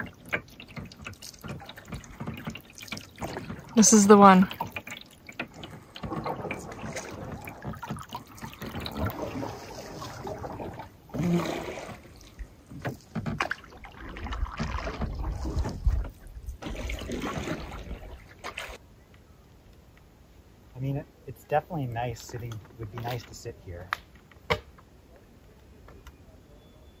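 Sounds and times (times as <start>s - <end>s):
paddle splashing water: 0.0s - 18.8s.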